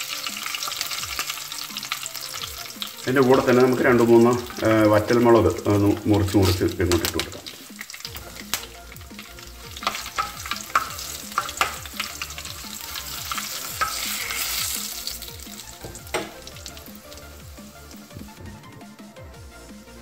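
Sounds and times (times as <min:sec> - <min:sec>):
spices sizzling in hot oil: 0:00.0 - 0:20.0
spoon scraping on pan: 0:09.7 - 0:14.9.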